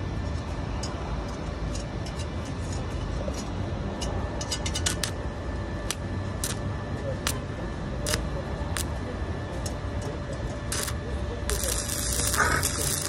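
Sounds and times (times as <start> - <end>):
welding arc crackling and popping: 5.8 - 6.6, 8.0 - 9.0, 10.7 - 13.0.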